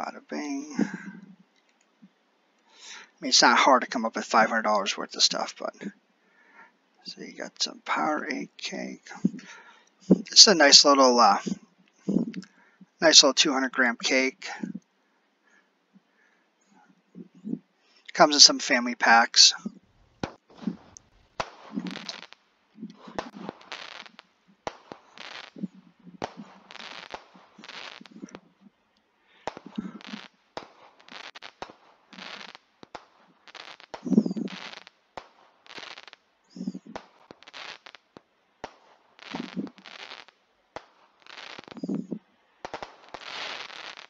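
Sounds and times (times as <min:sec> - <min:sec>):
firework shots thumping and crackling: 0:00.7 - 0:01.2, 0:09.0 - 0:10.3, 0:19.5 - 0:28.5, 0:29.4 - 0:44.0
sharp firework pops: 0:09.1 - 0:09.5, 0:19.6 - 0:28.5, 0:29.4 - 0:44.0.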